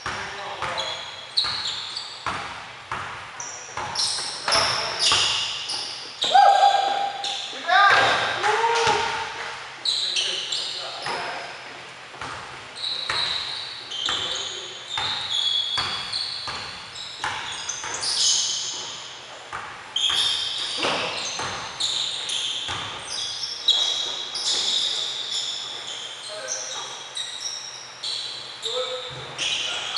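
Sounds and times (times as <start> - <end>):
sneakers squeaking on wood: 0.0 - 29.9
basketball bouncing on hardwood floor: 2.2 - 3.2.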